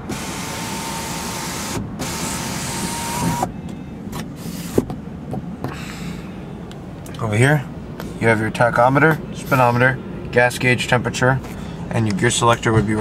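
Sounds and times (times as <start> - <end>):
sunroof motor whining: 0.0 - 7.1.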